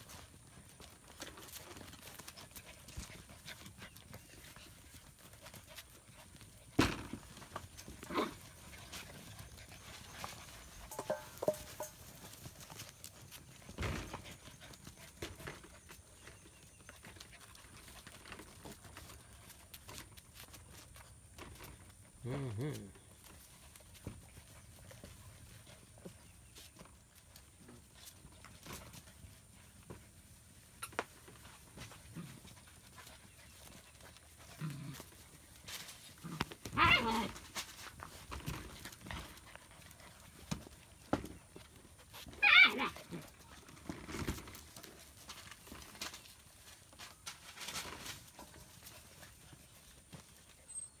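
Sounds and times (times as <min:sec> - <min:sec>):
puppy yelp: 0:36.7 - 0:37.4, 0:42.3 - 0:43.2.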